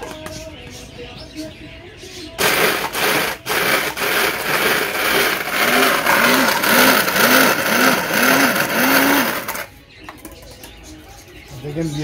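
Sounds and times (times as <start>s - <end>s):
electric grinder grinding biscuits: 2.4s - 9.7s.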